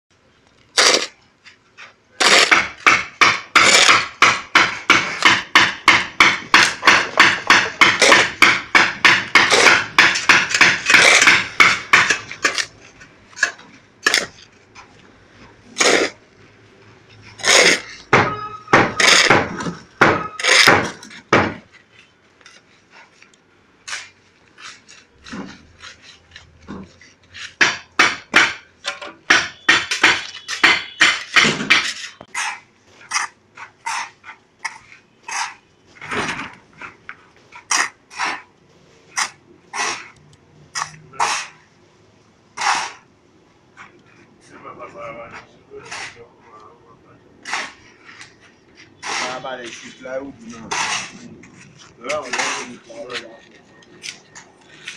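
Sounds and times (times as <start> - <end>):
hand tools tamping cement floor: 0.8 - 1.2, 1.8 - 14.9, 15.6 - 16.2, 17.2 - 21.8, 23.8 - 38.5, 39.1 - 41.6, 42.5 - 43.1, 47.4 - 54.9.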